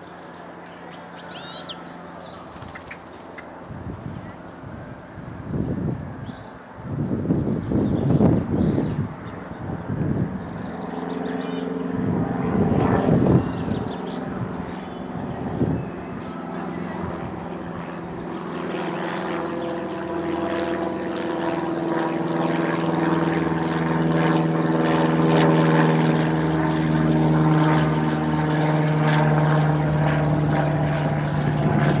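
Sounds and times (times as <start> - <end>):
engine droning: 8.6 - 32.0.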